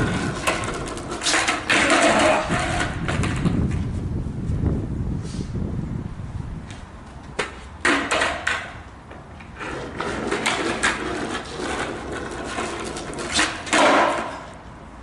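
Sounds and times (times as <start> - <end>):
skateboard clacks: 0.0 - 3.8, 7.3 - 14.6
skateboard wheels rolling on asphalt: 0.0 - 15.0.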